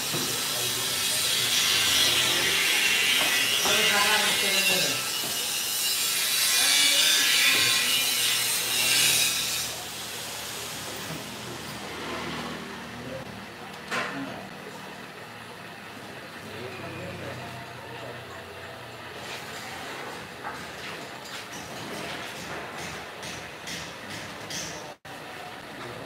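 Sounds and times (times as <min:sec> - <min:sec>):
loud hissing machine noise: 0:00.0 - 0:13.3.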